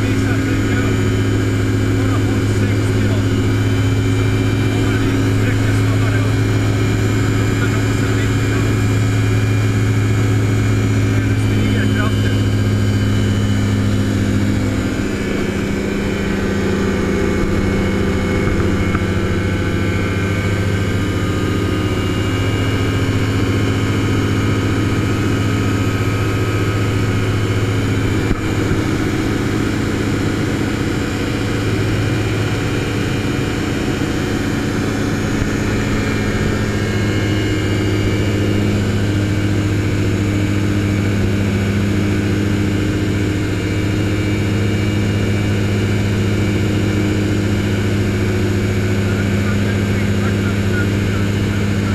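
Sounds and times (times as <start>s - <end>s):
gyrocopter engine drone: 0.0s - 51.9s
rushing airflow: 9.9s - 33.2s.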